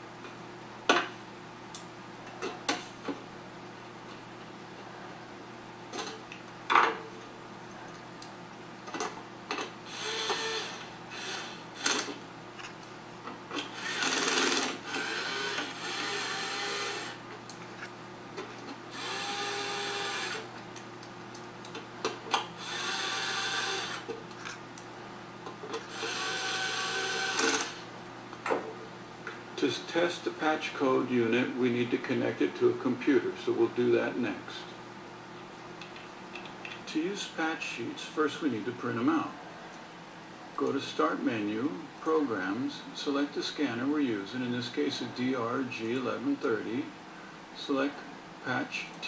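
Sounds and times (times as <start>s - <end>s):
electric screwdriver whining: 9.9s - 12.2s, 13.6s - 17.2s, 18.9s - 20.4s, 22.6s - 24.1s, 25.9s - 27.8s.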